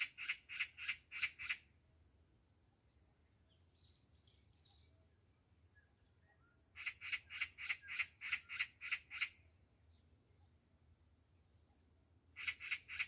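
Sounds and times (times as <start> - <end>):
small birds chirping: 0.0 - 13.0
magpie chattering in alarm: 6.8 - 9.4, 12.4 - 13.0.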